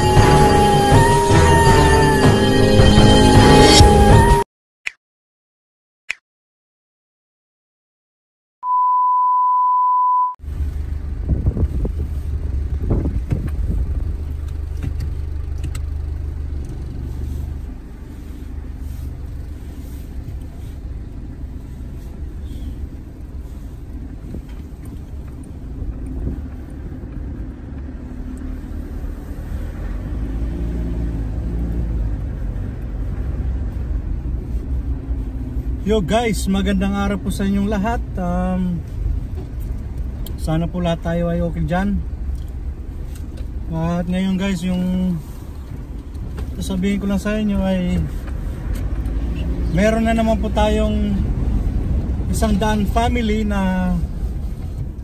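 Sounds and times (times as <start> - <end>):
car driving rumble from inside: 0.0 - 4.4, 8.8 - 55.0
high test-tone beep: 8.6 - 10.4.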